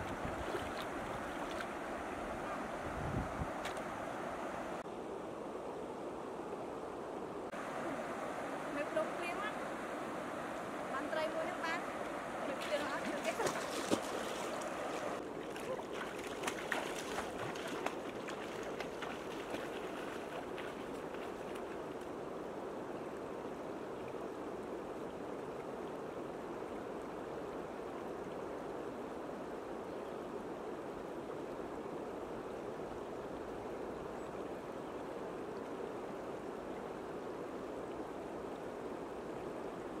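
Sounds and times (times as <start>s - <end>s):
river water flowing over rocks: 0.0s - 5.2s, 7.5s - 22.5s.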